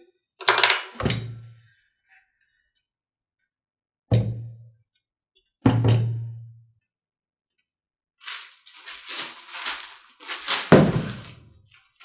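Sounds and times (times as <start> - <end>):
plastic wrapping and cardboard rustling: 8.2 - 12.0.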